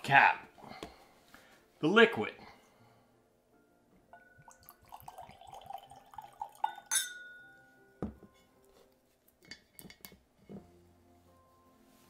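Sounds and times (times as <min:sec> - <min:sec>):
glass clink: 0:04.1 - 0:08.2.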